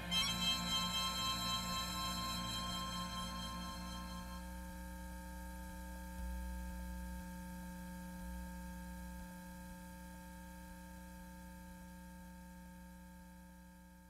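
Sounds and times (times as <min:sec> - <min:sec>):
music track: 0:00.0 - 0:04.5
electrical hum: 0:00.0 - 0:04.6.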